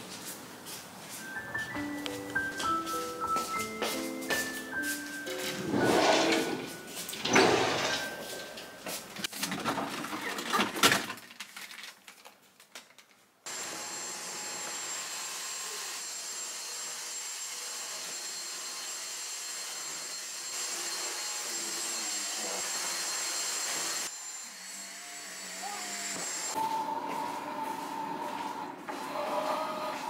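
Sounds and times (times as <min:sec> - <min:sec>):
vacuum cleaner whining: 0:13.5 - 0:30.0.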